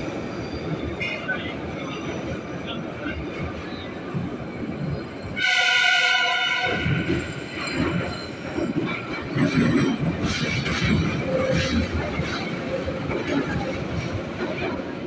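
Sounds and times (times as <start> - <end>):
moving train rumbling and knocking: 0.0 - 15.0
train horn blast: 5.4 - 7.1.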